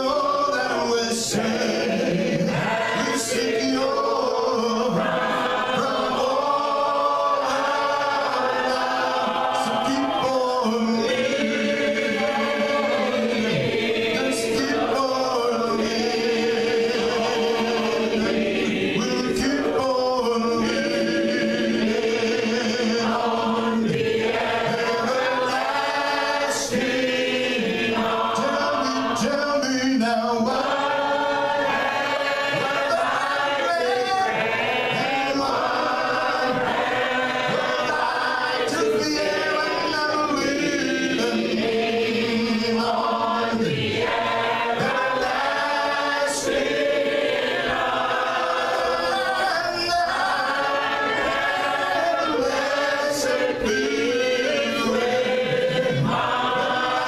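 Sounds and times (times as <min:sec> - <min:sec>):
man singing into a microphone: 0:00.0 - 0:05.0, 0:09.6 - 0:11.2, 0:14.1 - 0:17.9, 0:19.0 - 0:21.0, 0:28.4 - 0:30.6, 0:37.5 - 0:43.8, 0:48.8 - 0:50.5
group singing a cappella: 0:00.0 - 0:57.0.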